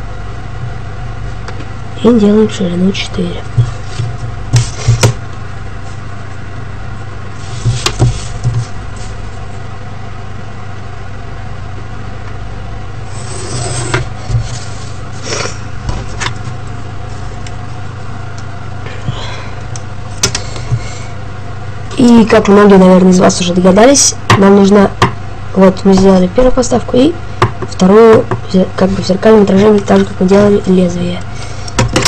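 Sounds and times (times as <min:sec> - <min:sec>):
low hum: 0:00.0 - 0:31.8
pencil drawing line: 0:13.1 - 0:14.0.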